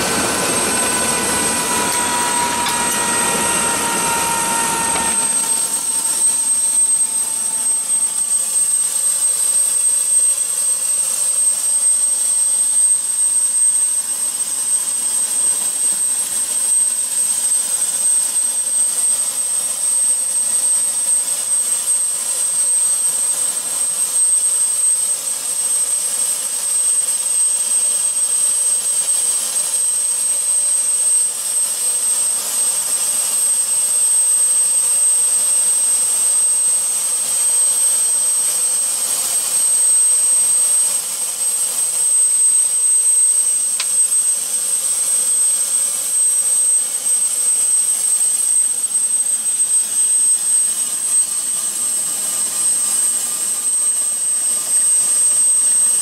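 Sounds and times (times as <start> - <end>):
rushing noise: 0.0 - 5.8
helicopter turbine whine: 0.0 - 13.3, 20.9 - 56.0.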